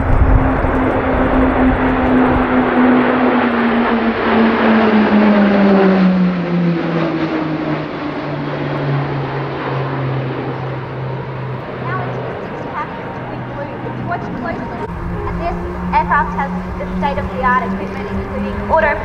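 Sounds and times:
propeller planes flying past: 0.0s - 19.0s.

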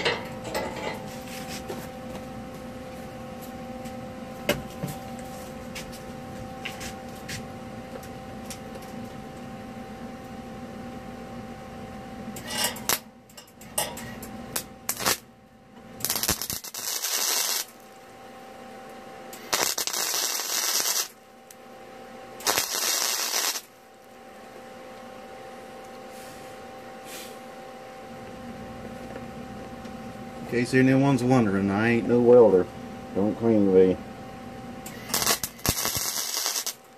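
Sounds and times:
welder humming: 0.0s - 36.9s
welding arc crackling: 12.4s - 13.1s, 14.5s - 15.3s, 16.0s - 18.1s, 19.4s - 21.2s, 22.4s - 24.1s, 34.9s - 36.9s.

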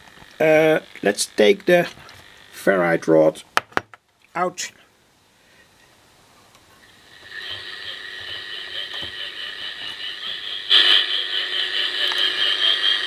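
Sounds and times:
steady high radio tones: 0.0s - 3.4s, 6.8s - 13.0s
shortwave radio hiss: 0.0s - 3.6s, 6.6s - 13.0s.

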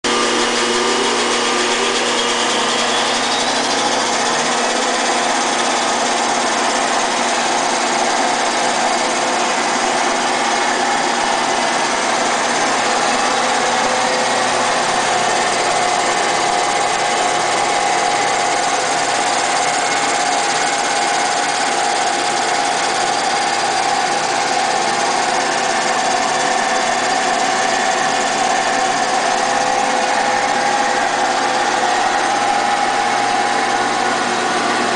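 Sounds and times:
disc sander motor whirring: 0.1s - 7.6s.

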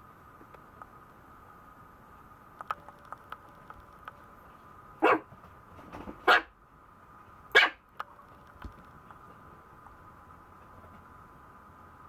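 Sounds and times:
puppy barking: 5.0s - 5.3s, 6.2s - 6.5s, 7.5s - 7.8s.

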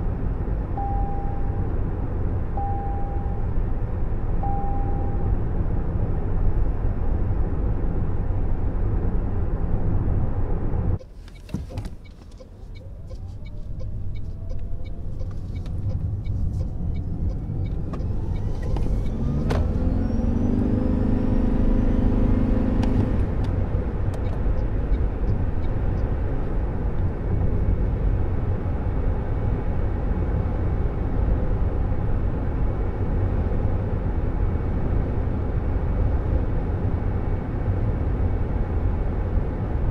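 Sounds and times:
multi-pitch steady tone: 0.8s - 1.7s, 2.6s - 3.5s, 4.4s - 5.3s.

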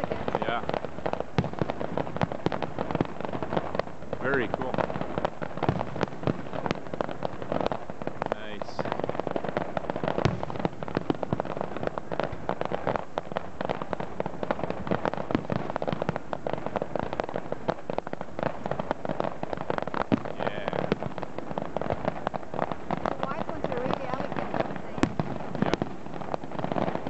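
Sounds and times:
fireworks bangs and crackling: 0.0s - 27.0s.

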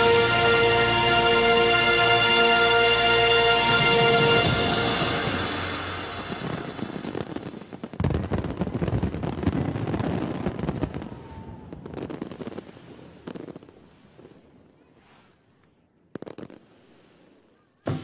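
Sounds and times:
fireworks bangs and crackles: 3.8s - 15.2s, 16.1s - 18.0s.

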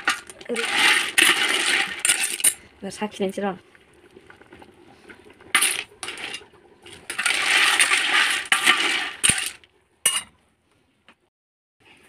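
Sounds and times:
metal ladle scraping a pot: 0.0s - 2.6s, 5.6s - 10.3s.

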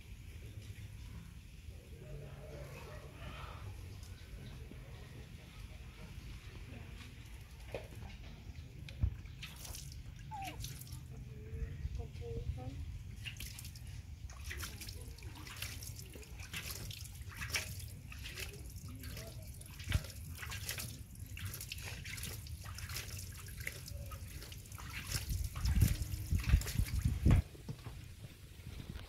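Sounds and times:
water splashing in metal basin: 9.2s - 11.1s, 13.1s - 27.4s.

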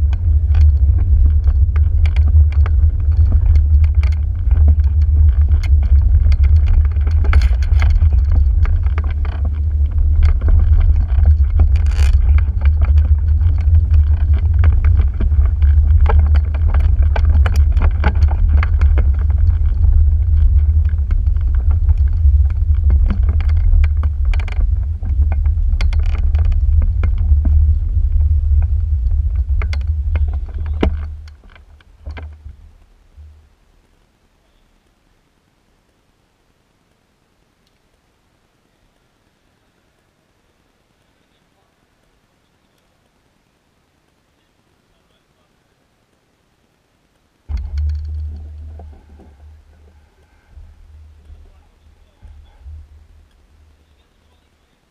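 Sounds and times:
engine knocks: 0.0s - 32.6s, 47.5s - 54.0s
engine rough rumble: 0.0s - 34.9s, 47.5s - 54.9s.

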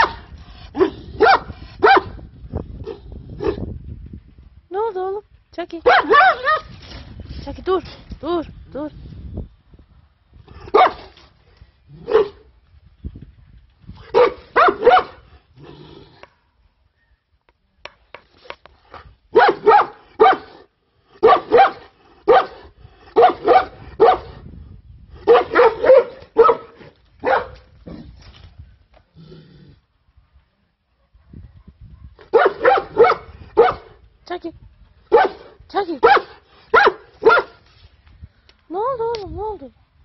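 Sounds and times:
dog barking: 0.8s - 2.2s, 5.9s - 6.6s, 10.7s - 11.0s, 12.0s - 12.4s, 14.1s - 15.2s, 19.3s - 20.6s, 21.2s - 22.6s, 23.2s - 24.4s, 25.3s - 27.6s, 31.0s - 34.0s, 35.1s - 37.6s.

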